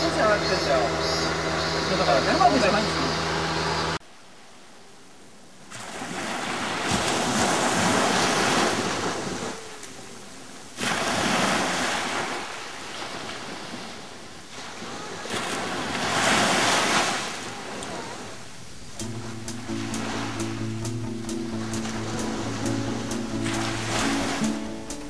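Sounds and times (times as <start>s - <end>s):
small waves washing on sand: 5.6s - 20.6s.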